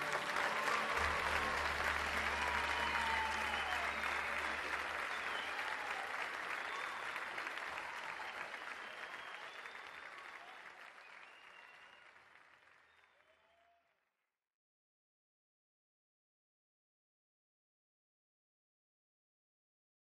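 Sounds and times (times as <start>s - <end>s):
large audience applauding: 0.0s - 13.8s.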